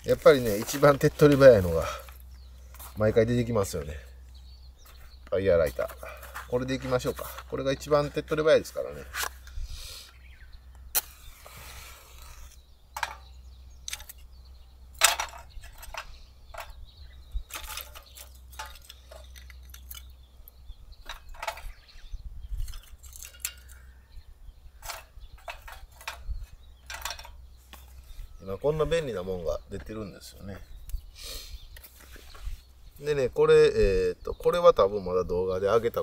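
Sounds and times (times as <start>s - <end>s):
match struck and flaring: 10.9s - 12.6s
wooden knocks of kindling: 13.0s - 14.1s, 15.0s - 16.8s, 17.5s - 20.0s, 21.0s - 21.9s, 24.8s - 28.0s.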